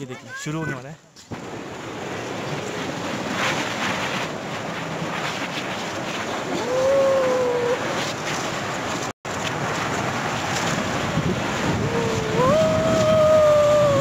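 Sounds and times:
wind buffeting microphone: 1.3 - 14.0
rubber tube sliding on snow: 1.4 - 14.0
person whooping: 6.6 - 7.9, 11.7 - 14.0.

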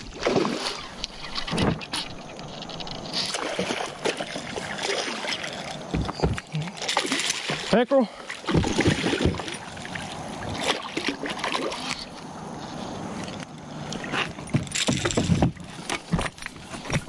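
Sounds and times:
fish thrashing at surface: 0.0 - 7.8, 8.4 - 12.1
water splashing against boat hull: 0.0 - 12.1
knocks and thuds of gear: 14.1 - 17.0.

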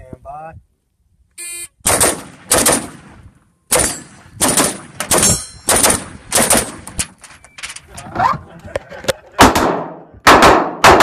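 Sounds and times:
rifle shots: 1.8 - 7.0, 9.4 - 11.0.

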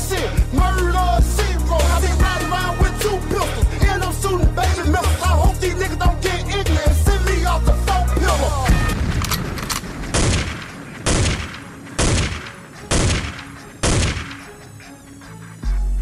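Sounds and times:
hip-hop beat: 0.0 - 9.1, 10.3 - 16.0
gunshot sound effects: 8.7 - 14.5.

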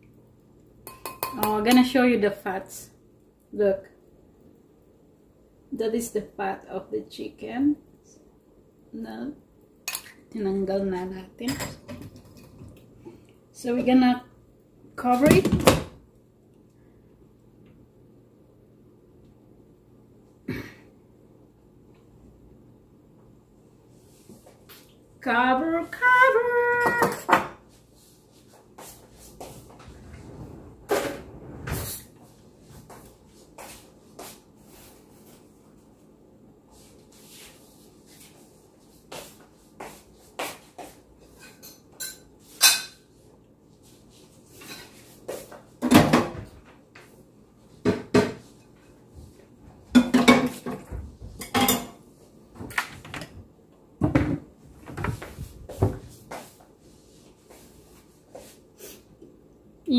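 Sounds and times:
cookware and utensils clinking: 0.8 - 2.0, 9.9 - 10.2, 11.4 - 12.7, 41.3 - 43.1, 51.4 - 52.0.

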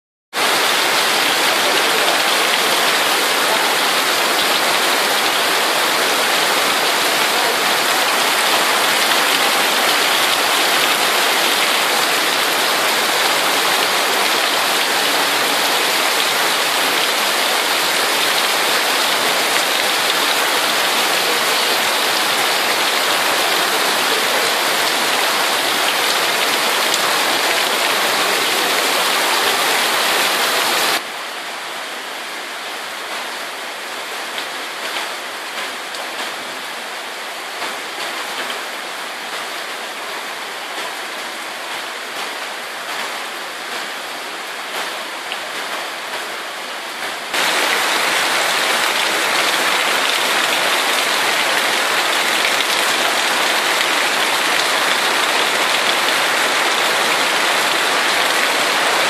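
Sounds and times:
heavy rain on a metal roof: 0.3 - 59.0
rain on foliage: 0.3 - 59.0
rain runoff pouring: 0.4 - 31.0, 47.2 - 59.0.

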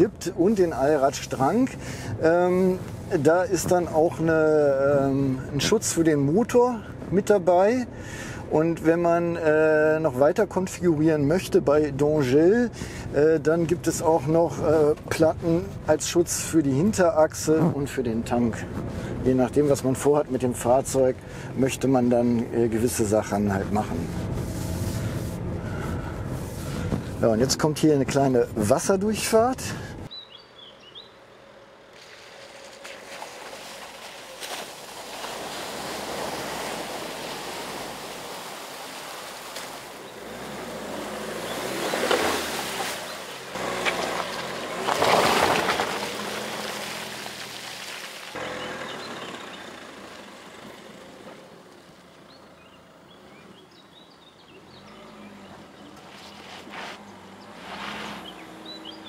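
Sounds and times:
diesel engine running: 23.3 - 27.3, 48.4 - 53.4
water sloshing and splashing: 32.0 - 48.4.

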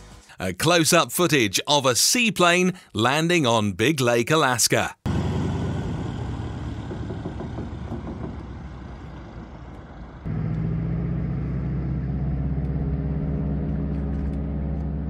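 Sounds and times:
plane engine and propeller drone: 5.1 - 15.0.

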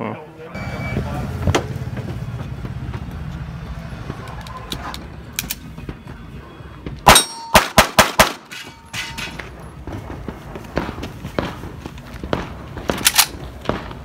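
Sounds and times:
steel target ringing: 7.0 - 7.8
pistol shots: 7.0 - 8.8.

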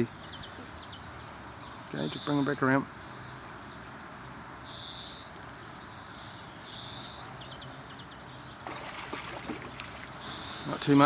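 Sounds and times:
insect chirping: 4.6 - 7.5, 8.1 - 11.0.

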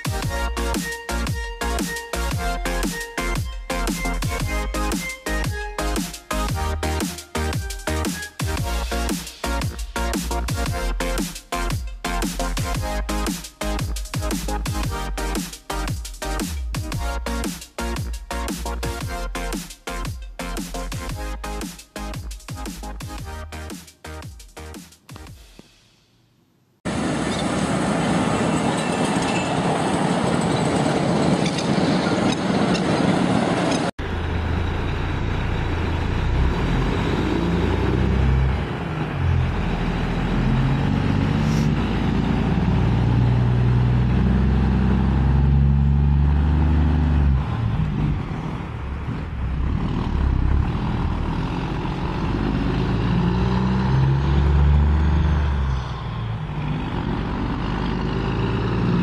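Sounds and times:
diesel truck engine on dirt track: 26.9 - 59.0
truck passing: 26.9 - 59.0.

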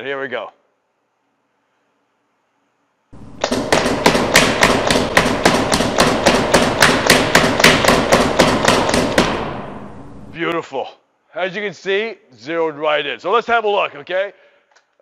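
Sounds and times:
paintball marker firing: 3.2 - 9.9
balls hitting target: 3.2 - 10.3.

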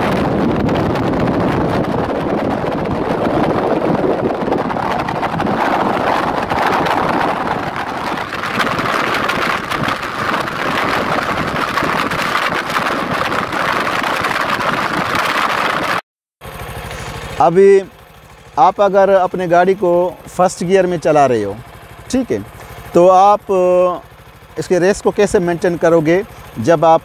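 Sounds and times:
wind rushing over microphone: 0.0 - 16.0
vehicle road noise: 0.0 - 27.0.

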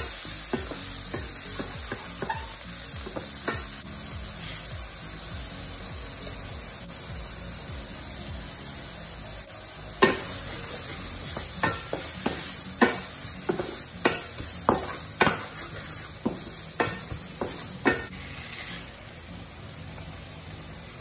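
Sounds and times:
food sizzling in pan: 0.0 - 21.0
spatula knocking and scraping pan: 0.5 - 3.7, 10.0 - 18.1.

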